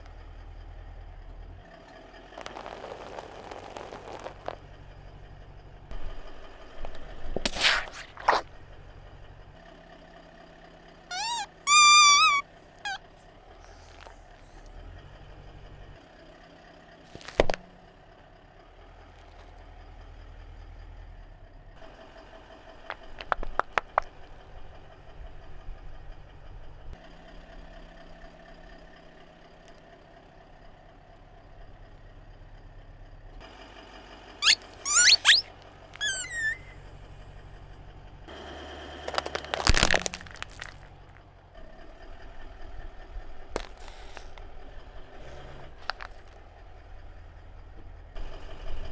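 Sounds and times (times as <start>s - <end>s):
car engine idling: 0.0s - 7.4s, 8.2s - 48.9s
plastic cracking under tyre: 2.3s - 4.6s, 17.1s - 17.6s, 39.0s - 41.3s, 43.5s - 44.5s, 45.8s - 46.4s
squeeze toy squeaking: 11.1s - 13.1s, 34.4s - 36.8s.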